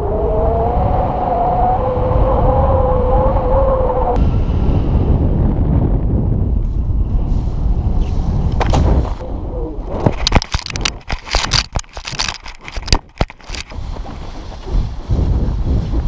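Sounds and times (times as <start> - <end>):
wind buffeting microphone: 0.0 - 16.0
knocks and scrapes of tumbling landing: 9.9 - 16.0.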